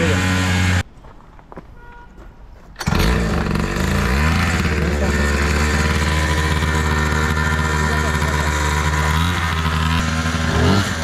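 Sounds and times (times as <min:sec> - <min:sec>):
small two-stroke engine starting: 0:02.8 - 0:11.0.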